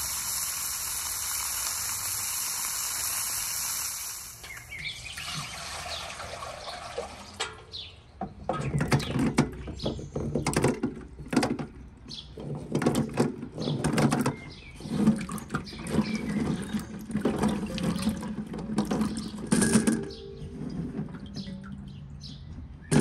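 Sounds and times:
water splashing in metal basin: 4.1 - 7.8, 12.3 - 23.0.

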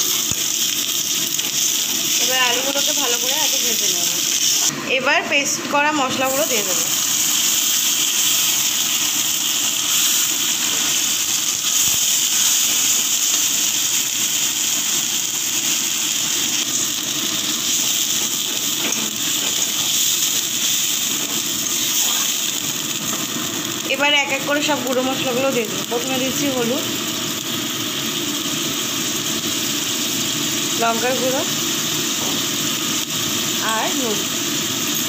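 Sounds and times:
food sizzling in hot oil: 0.0 - 35.0.

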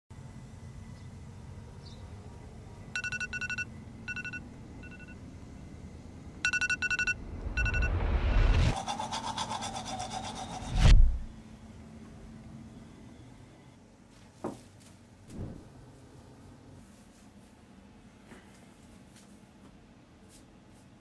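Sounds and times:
electronic alarm beeping: 3.0 - 5.2, 6.4 - 8.6
rising whoosh: 7.2 - 8.9, 10.7 - 11.3.

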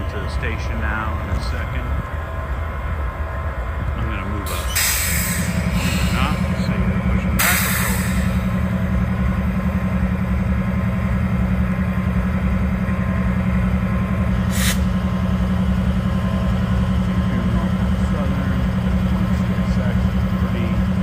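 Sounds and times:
diesel locomotive engine idling: 0.0 - 21.0
air hiss: 7.4 - 8.3, 14.5 - 14.9.

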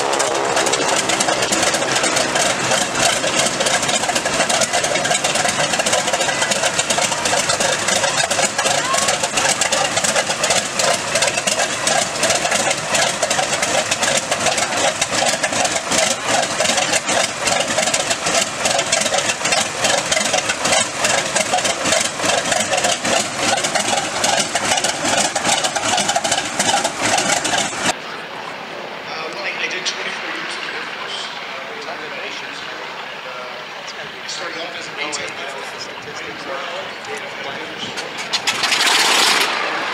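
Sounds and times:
radial aircraft engine idling: 0.0 - 28.2.

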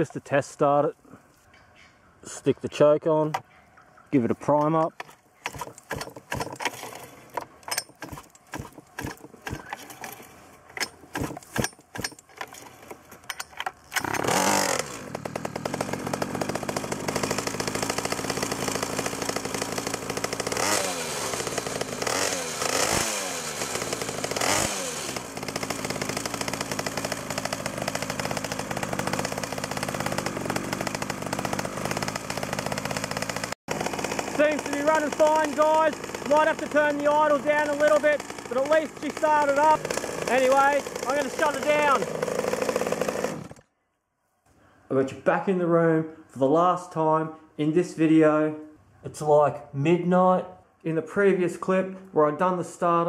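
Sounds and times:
recoil starter pulls rattling: 4.5 - 43.6
two-stroke engine running and revving: 14.0 - 43.6.

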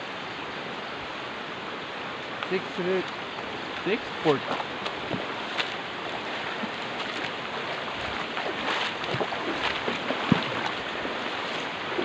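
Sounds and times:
river rushing: 0.0 - 12.0
splashes and knocks: 3.8 - 12.0.

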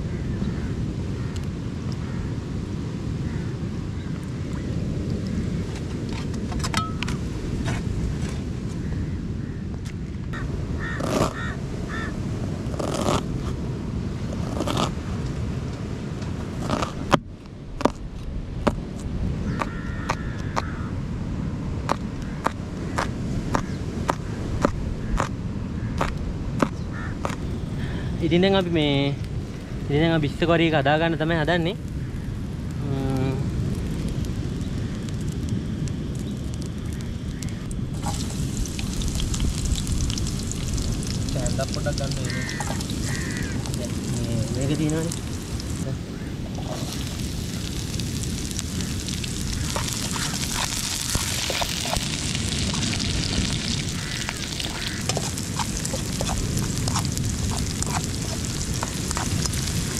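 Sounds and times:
fire crackling: 0.0 - 9.0, 10.0 - 59.9
wind rumbling on microphone: 0.0 - 59.9
fire hissing: 27.4 - 59.9.

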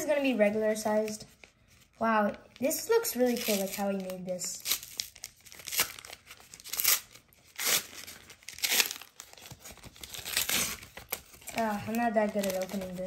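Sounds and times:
paper tearing and crinkling: 2.6 - 13.0.

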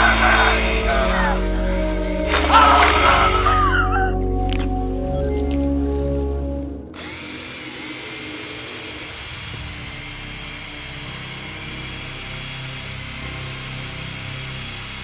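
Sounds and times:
power saw blade whirring: 7.0 - 15.0.

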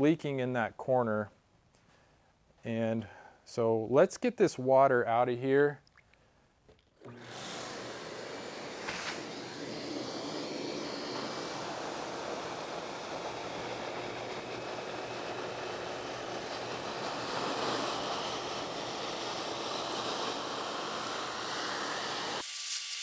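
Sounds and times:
shop vacuum sucking water: 6.7 - 23.0.

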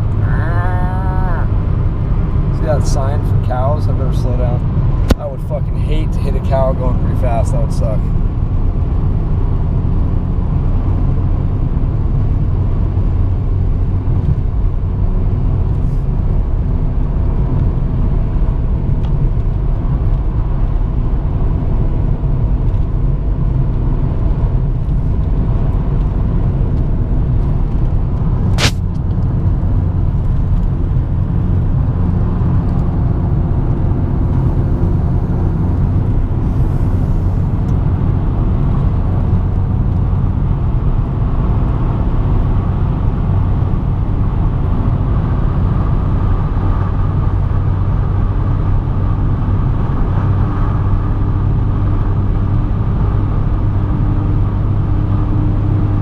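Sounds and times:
car road and engine rumble: 0.0 - 56.0
sharp click: 28.5 - 29.1.

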